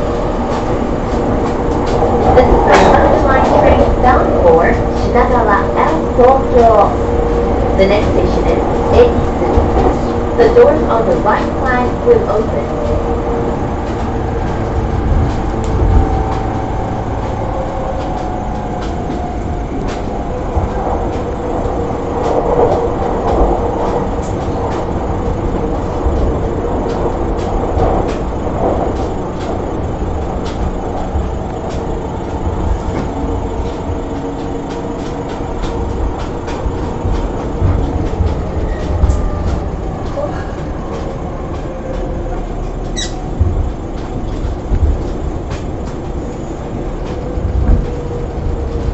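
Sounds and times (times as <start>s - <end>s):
train traction motor hum: 0.0s - 48.9s
wheels clicking over rail joints: 0.0s - 48.9s
wheels rumbling: 0.0s - 48.9s.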